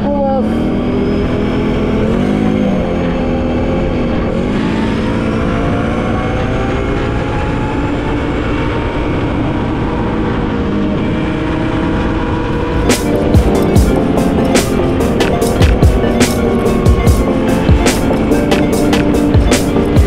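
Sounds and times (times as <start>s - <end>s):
quad bike engine running: 0.0s - 20.0s.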